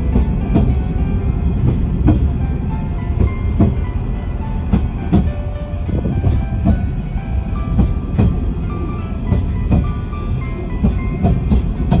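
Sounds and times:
background music: 0.0 - 12.0
train rumbling on rails: 0.0 - 12.0
wheels clacking over rail joints: 0.0 - 12.0.

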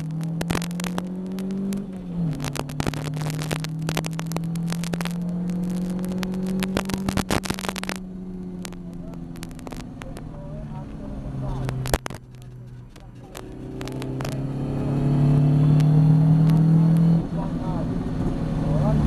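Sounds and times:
sharp clicks and knocks: 0.0 - 14.5
race car engine accelerating: 0.0 - 19.0.

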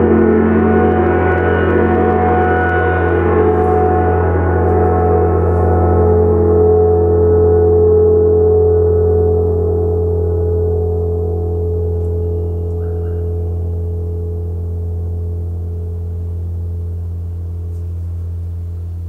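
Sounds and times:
gong ringing: 0.0 - 18.2.

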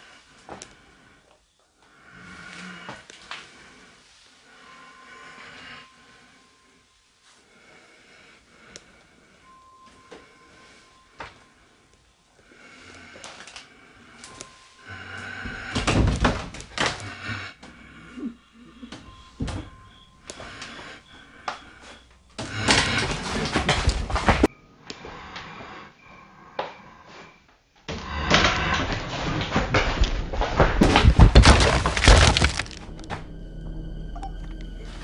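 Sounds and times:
clattering and crashing: 28.7 - 33.2.

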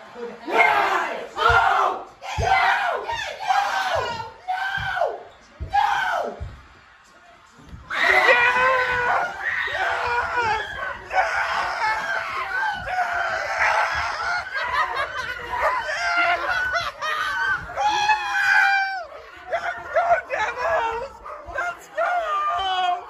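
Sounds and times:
people screaming and yelling: 0.0 - 23.0.

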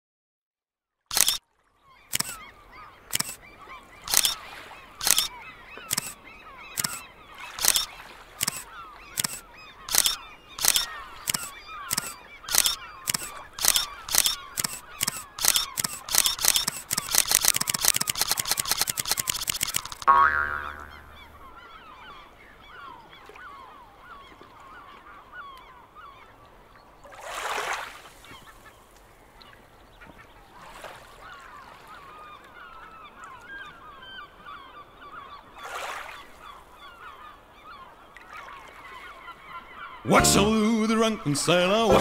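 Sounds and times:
camera shutter clicks: 1.1 - 1.4, 2.1 - 2.4, 3.1 - 3.4, 4.1 - 4.4, 5.0 - 20.1
bird calls: 1.1 - 27.1, 28.1 - 42.0.

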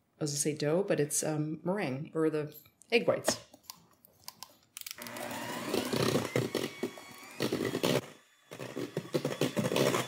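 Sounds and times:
electric hand mixer beating: 5.0 - 10.0.

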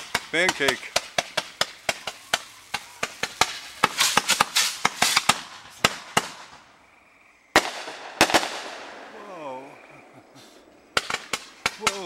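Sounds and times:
fireworks popping and crackling: 0.0 - 6.7, 7.5 - 9.3, 10.9 - 12.0
loud firework bang: 0.1 - 6.6.

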